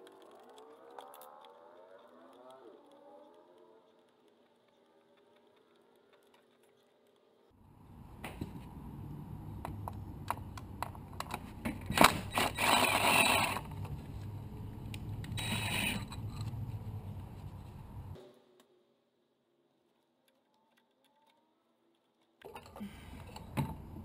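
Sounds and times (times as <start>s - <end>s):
cordless drill running: 12.0s - 13.7s.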